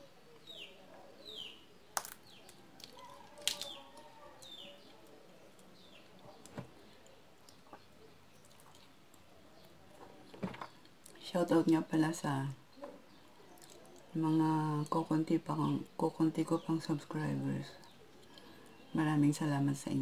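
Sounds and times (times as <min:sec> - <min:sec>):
bird chirping: 0:00.0 - 0:20.0
peanut shells cracking: 0:01.9 - 0:09.8, 0:13.5 - 0:15.0.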